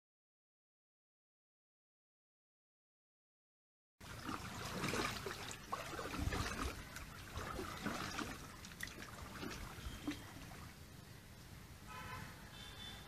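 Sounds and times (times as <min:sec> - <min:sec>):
paddle splashing water: 0:04.0 - 0:10.8.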